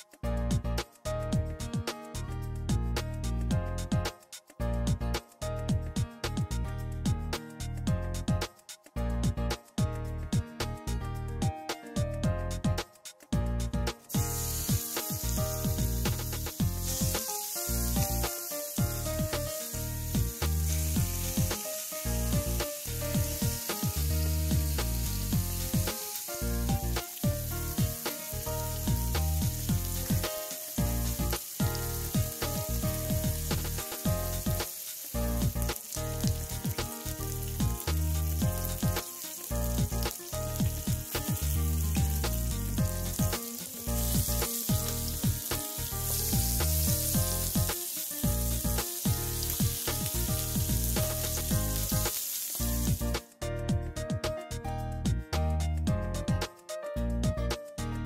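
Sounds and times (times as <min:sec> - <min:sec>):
background music: 0:00.0 - 0:58.0
chicken wings sizzling on grill: 0:14.1 - 0:53.2.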